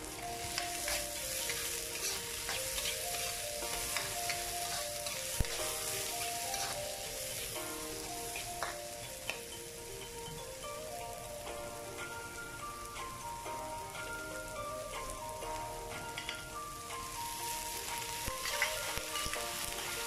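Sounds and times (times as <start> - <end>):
vegetables sizzling in a wok: 0.0 - 20.0
metal ladle scraping a pan: 0.1 - 8.9, 17.8 - 20.0.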